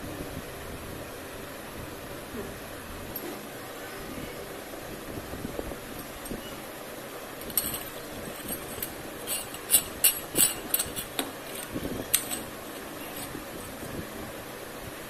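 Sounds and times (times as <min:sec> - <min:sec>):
metal clamps clinking: 0:07.4 - 0:13.9.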